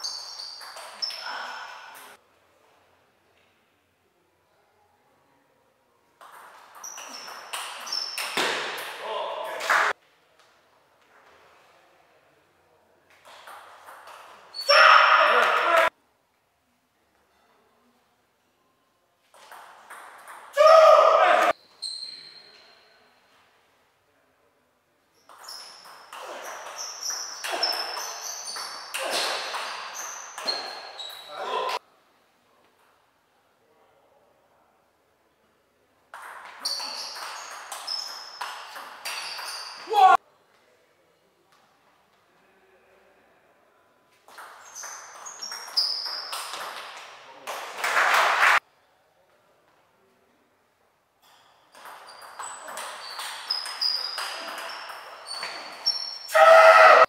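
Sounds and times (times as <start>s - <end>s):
ping pong ball hitting bats: 0.2s - 1.2s, 6.2s - 9.0s, 19.3s - 20.6s, 25.2s - 31.2s, 36.1s - 39.9s, 44.3s - 48.4s, 51.7s - 56.0s.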